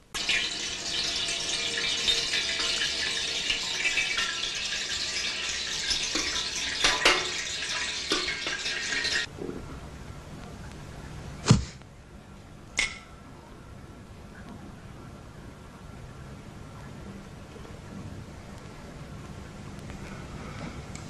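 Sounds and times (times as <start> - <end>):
tap water running into sink: 0.1 - 9.3.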